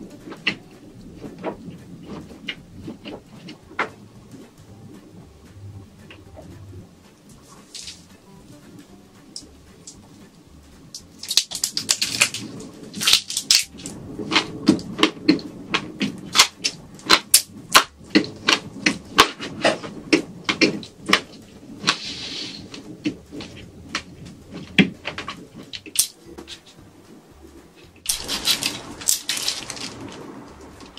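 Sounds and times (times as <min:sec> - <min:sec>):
crunchy chewing: 0:11.0 - 0:26.8, 0:27.8 - 0:30.9
short hiss: 0:21.9 - 0:22.7.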